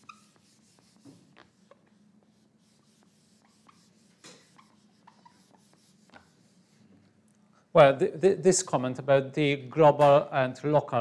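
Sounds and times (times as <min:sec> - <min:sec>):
eraser wiping whiteboard: 0:00.0 - 0:07.0.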